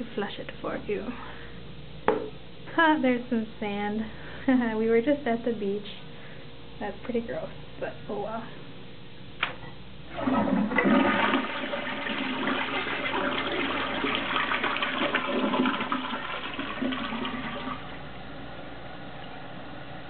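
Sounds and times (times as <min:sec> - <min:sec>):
toilet flushing: 0:10.1 - 0:19.6.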